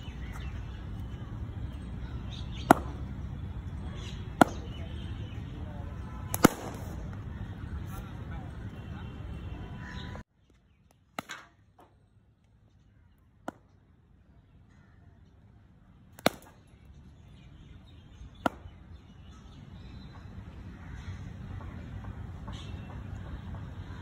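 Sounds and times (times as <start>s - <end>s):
cricket ball cracking on bat: 2.5s - 3.3s, 4.2s - 5.0s, 6.3s - 7.2s, 11.1s - 12.0s, 13.4s - 13.8s, 16.2s - 16.8s, 18.4s - 18.8s.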